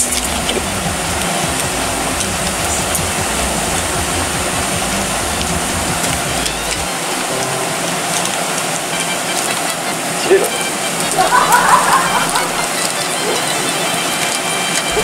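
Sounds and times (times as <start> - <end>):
low rumble: 0.0 - 8.6.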